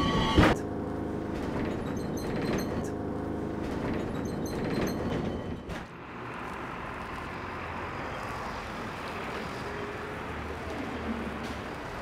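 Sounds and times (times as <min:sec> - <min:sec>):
funicular car low rumble: 0:00.0 - 0:12.0
funicular car clunk: 0:01.2 - 0:06.0.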